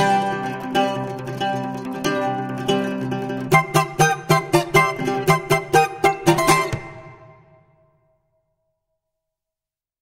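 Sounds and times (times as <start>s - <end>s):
mandolin plucked notes and chord: 0.0s - 7.9s.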